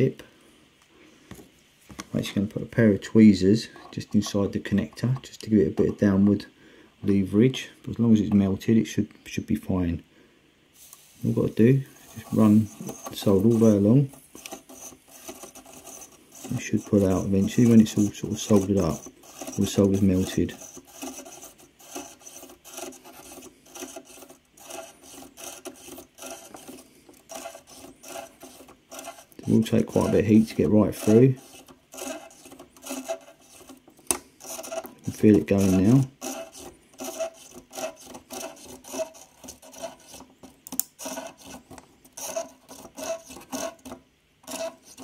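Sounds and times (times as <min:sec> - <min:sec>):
soldering iron scraping solder: 0:10.8 - 0:45.0.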